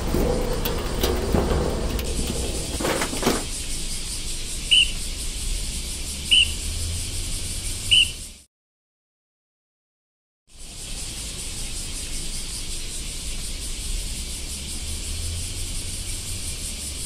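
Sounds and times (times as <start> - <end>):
faint knocks: 0.0 - 3.5.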